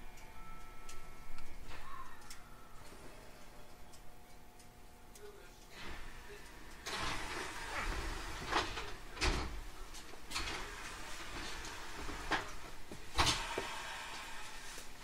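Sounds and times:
train interior rumble and hiss: 0:10.6 - 0:15.0.

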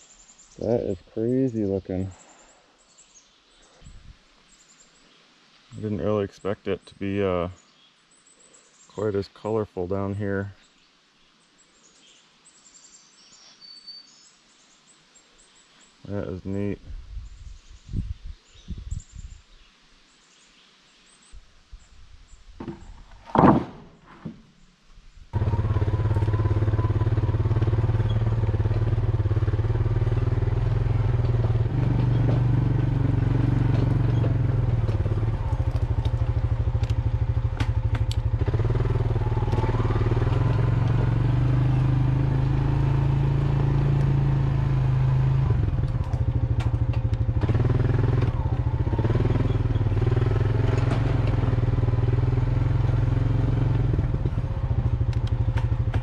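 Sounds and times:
small gasoline engine running: 0:25.4 - 0:56.0.

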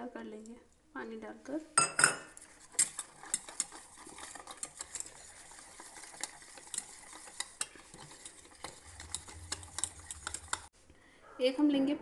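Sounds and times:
spoon stirring batter: 0:01.9 - 0:10.7.

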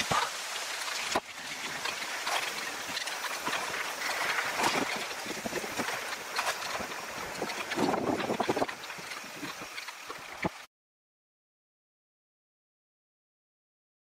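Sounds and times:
bicycle tyre noise on dirt: 0:00.0 - 0:10.7
bike rattling and knocking: 0:00.0 - 0:10.7.

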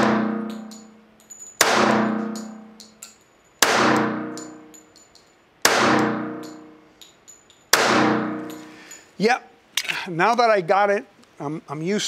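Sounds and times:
pistol shots echoing indoors: 0:05.6 - 0:06.8, 0:07.7 - 0:08.6.

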